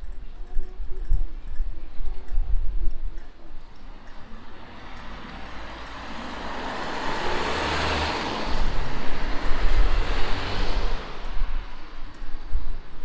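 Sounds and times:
car approaching low rumble: 3.6 - 13.0
tyres hissing on wet road: 4.5 - 12.0.

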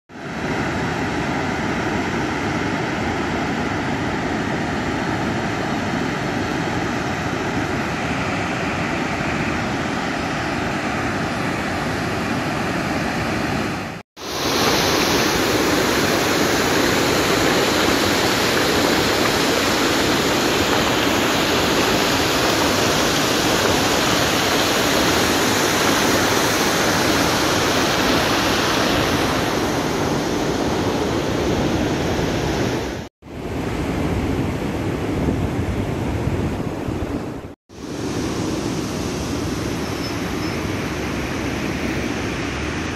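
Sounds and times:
water rushing over spillway: 0.1 - 33.7.

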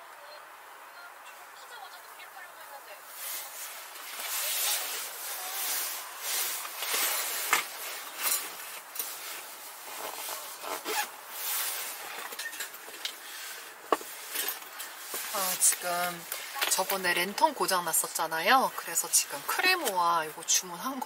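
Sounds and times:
fabric rustling: 2.5 - 20.3.

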